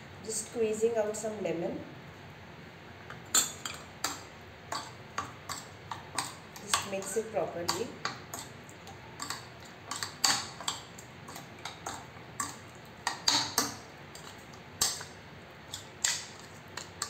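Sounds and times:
metal spoon scraping a bowl: 3.4 - 15.1.

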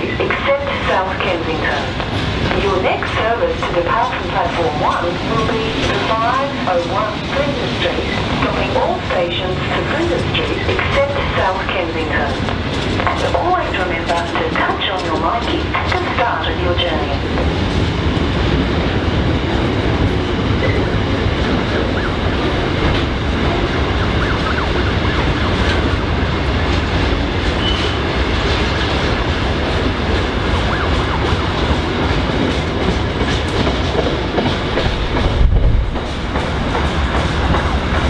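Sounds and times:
freight train wagons rolling: 19.3 - 38.0.

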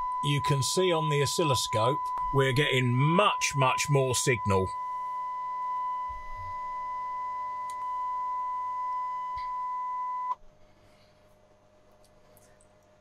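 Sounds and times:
click: 7.6 - 7.9.

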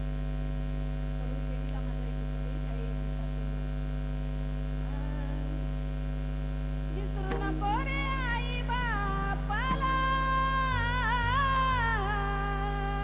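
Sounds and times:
electrical mains hum: 0.0 - 13.0
person singing: 7.0 - 13.0.

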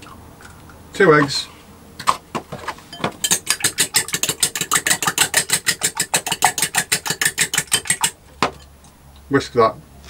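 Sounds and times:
fork beating eggs in glass bowl: 3.2 - 8.2.

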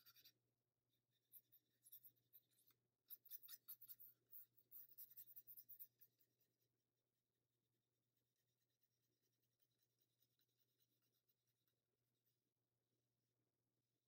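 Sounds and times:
paintbrush strokes on paper: 0.0 - 12.5.

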